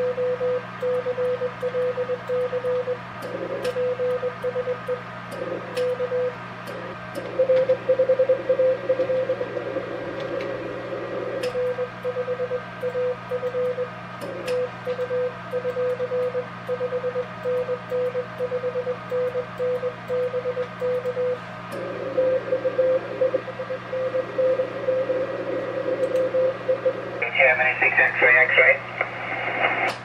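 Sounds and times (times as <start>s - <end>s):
morse code tone: 0.0s - 3.0s, 3.7s - 5.0s, 7.4s - 9.6s, 11.5s - 14.0s, 14.6s - 25.4s
steady low hum: 0.0s - 30.0s.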